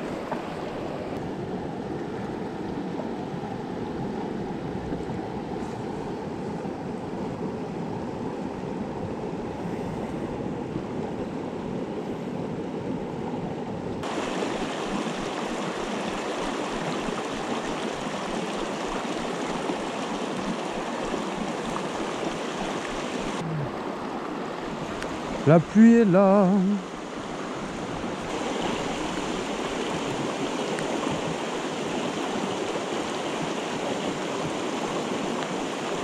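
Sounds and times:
river rushing over stones: 14.0s - 36.0s.

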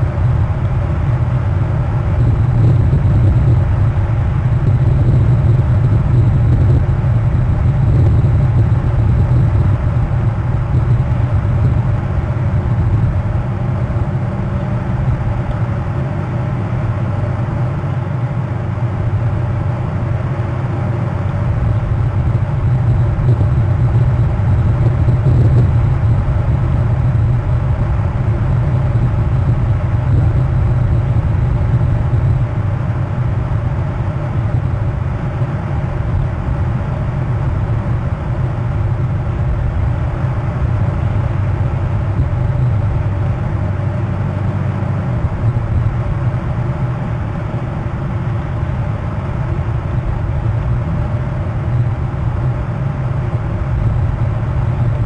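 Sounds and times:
low background rumble: 0.0s - 55.0s.

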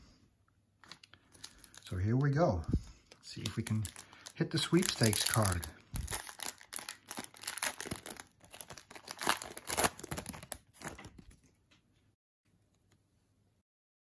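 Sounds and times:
foil wrapper crinkling and tearing: 0.8s - 2.4s, 3.1s - 11.3s.

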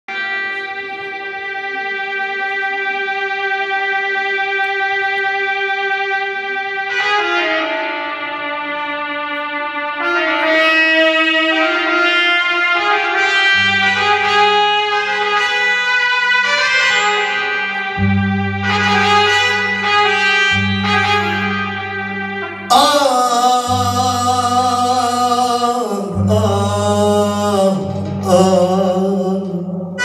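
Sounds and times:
synthesizer brass-like melody: 0.1s - 30.0s
low bass note: 12.8s - 30.0s.

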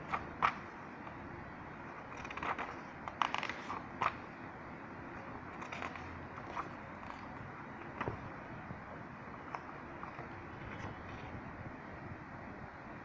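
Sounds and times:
steady low hiss: 0.0s - 13.0s
pages rustling: 1.8s - 4.4s, 5.1s - 8.3s, 9.4s - 11.4s.

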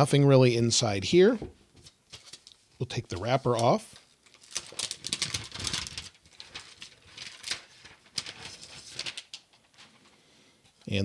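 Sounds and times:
plastic wrapper crinkling: 2.1s - 10.0s.

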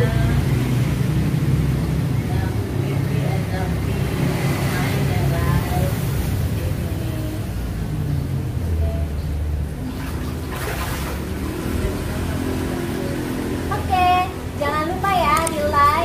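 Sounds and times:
water splashing in a pool: 4.0s - 13.7s.

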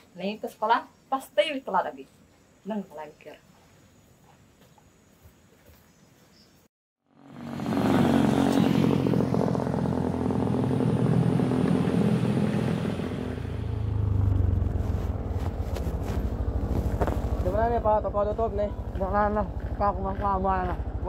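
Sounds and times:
scooter engine running: 7.0s - 21.0s.

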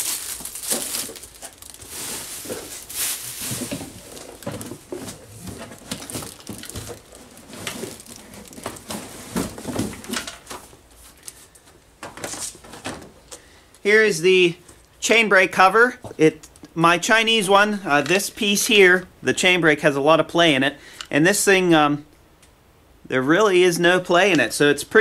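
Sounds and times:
packaging rustling: 0.0s - 12.8s.

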